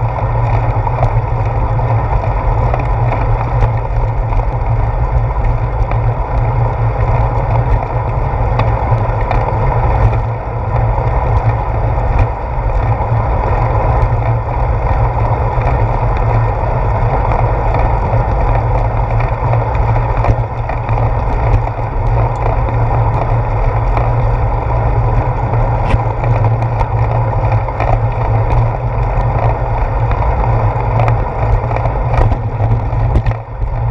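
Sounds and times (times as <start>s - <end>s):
bicycle road rumble: 0.0s - 33.9s
clicks and knocks from bumps: 30.9s - 33.9s.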